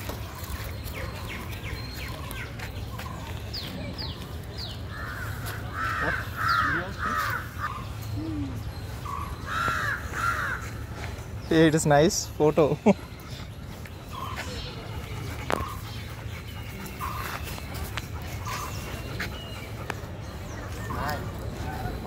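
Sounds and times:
crows cawing: 0:04.9 - 0:07.8, 0:09.1 - 0:10.8.

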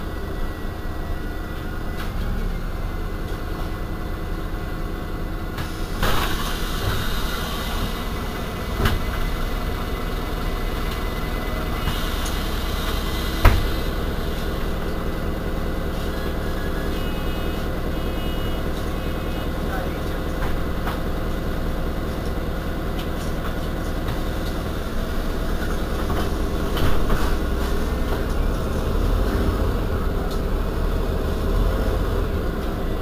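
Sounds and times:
bus engine running: 0:00.0 - 0:33.0.

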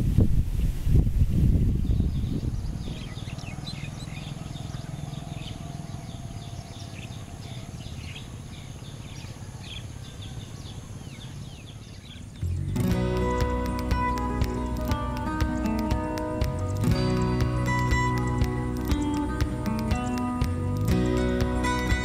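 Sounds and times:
small birds chirping: 0:00.6 - 0:22.0
low steady rumble: 0:12.3 - 0:22.0.

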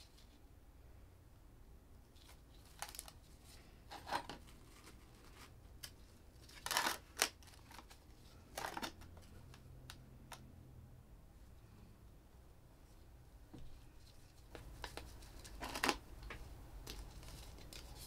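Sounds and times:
hands rustling and scraping a plant pot: 0:02.1 - 0:09.7, 0:13.7 - 0:18.0.

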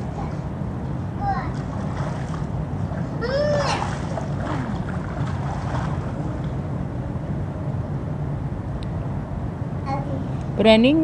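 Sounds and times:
high swooping cry: 0:03.2 - 0:04.1.

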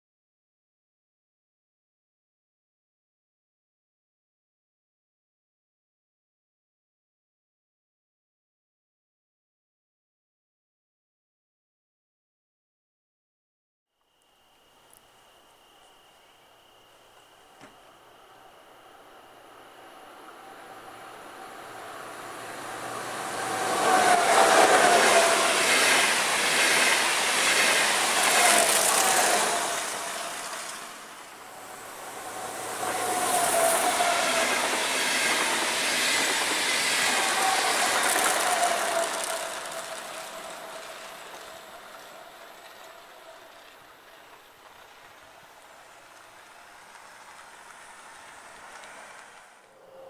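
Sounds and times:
wheel and rail noise: 0:14.0 - 0:50.0
electric trains passing: 0:14.4 - 0:50.0.

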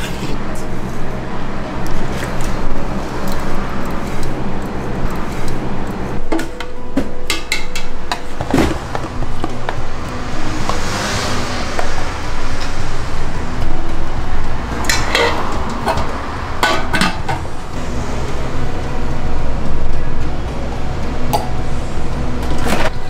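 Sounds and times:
metal ladle scraping a pot: 0:14.9 - 0:17.5.

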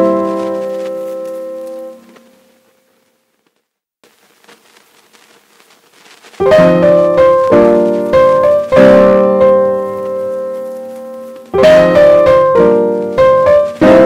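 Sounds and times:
piano chords: 0:00.0 - 0:02.7, 0:06.4 - 0:14.0.

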